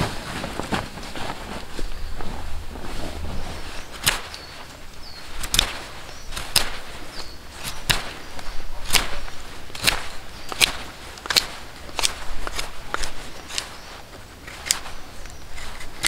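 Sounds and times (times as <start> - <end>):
knife carving wooden stick: 4.0 - 4.5, 5.1 - 6.9, 7.5 - 13.7.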